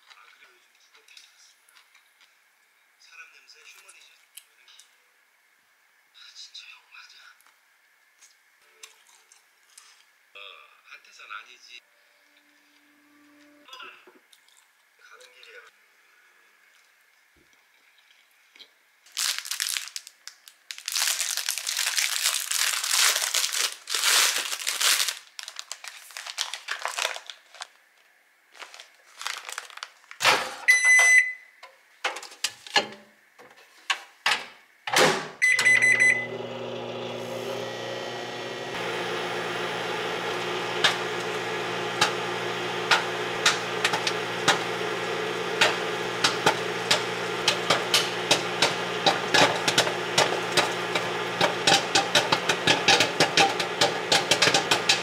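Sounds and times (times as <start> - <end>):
paper bag crinkling: 19.1 - 27.8, 28.5 - 30.2
microwave keypad beeps: 30.7 - 31.5, 35.4 - 36.4
microwave oven humming: 35.4 - 55.0
popcorn popping: 35.4 - 55.0.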